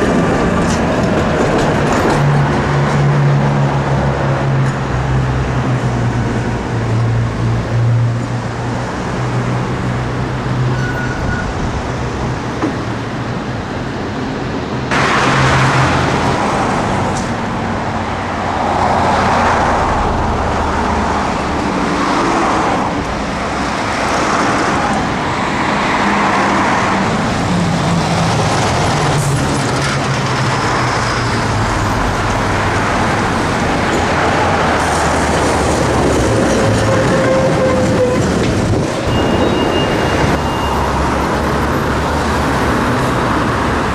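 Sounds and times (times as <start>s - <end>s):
road traffic: 0.0s - 43.9s
tram wheels rumbling over rails: 0.0s - 43.9s.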